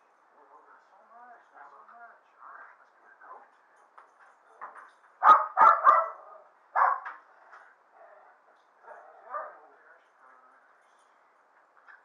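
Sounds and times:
dog barking: 0:05.2 - 0:07.2, 0:08.8 - 0:09.8.

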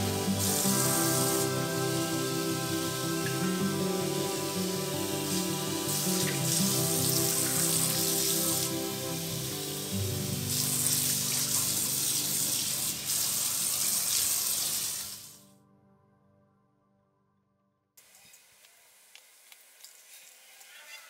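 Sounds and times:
soft background music: 0:00.0 - 0:14.8
faucet water splashing in sink: 0:04.5 - 0:15.4.

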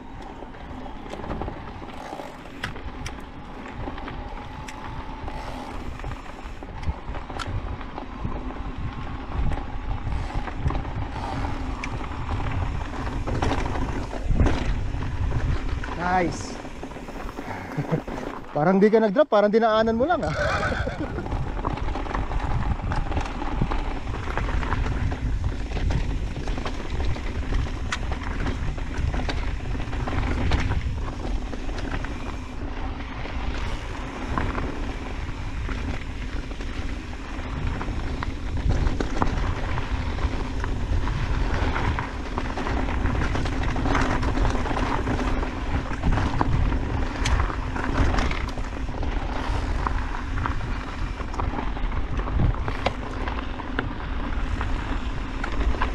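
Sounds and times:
tyres crunching over gravel: 0:00.0 - 0:19.2, 0:19.9 - 0:55.9
stones and bike parts rattling: 0:00.0 - 0:55.9
wind rumbling on microphone: 0:00.0 - 0:55.9.

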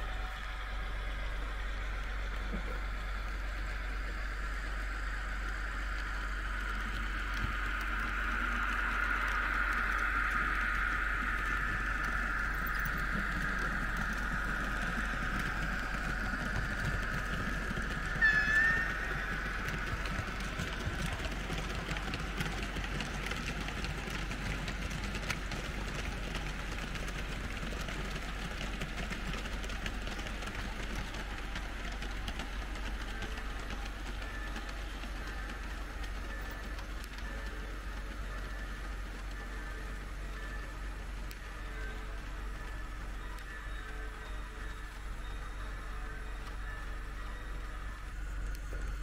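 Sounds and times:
model train motors whirring: 0:00.0 - 0:49.0
high squeal: 0:18.2 - 0:19.7.

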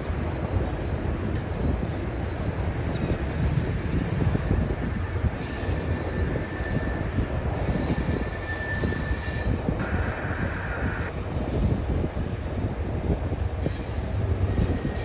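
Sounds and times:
freight cars rolling on rails: 0:00.0 - 0:15.0
high wheel squeal: 0:05.3 - 0:09.6.

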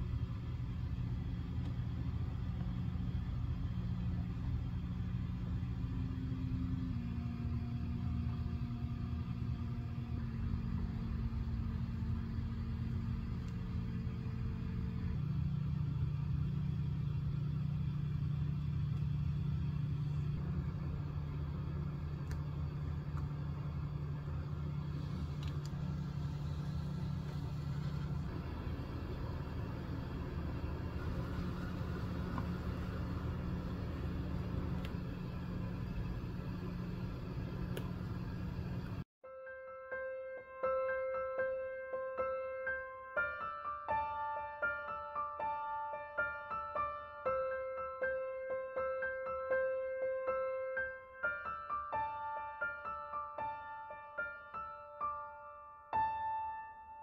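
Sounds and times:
low rumbling hum: 0:00.0 - 0:39.1.

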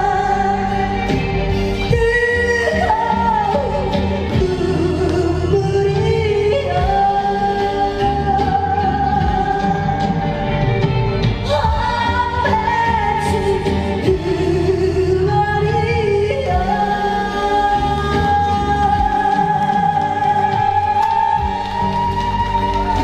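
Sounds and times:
amplified backing track: 0:00.0 - 0:23.0.

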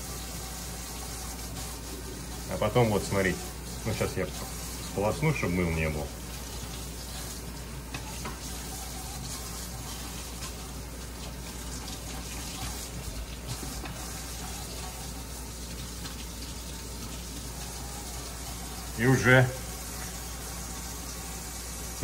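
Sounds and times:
tap water splashing: 0:06.2 - 0:18.8.

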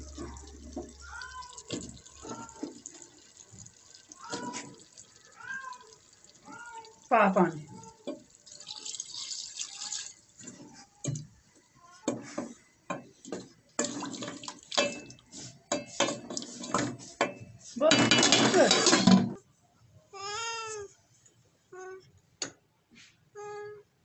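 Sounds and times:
water pouring into a pot: 0:00.0 - 0:11.2, 0:13.3 - 0:17.0
wooden spoon stirring in a pot: 0:00.0 - 0:11.2, 0:12.1 - 0:19.1
metal lid scraping and rattling: 0:18.0 - 0:19.3.

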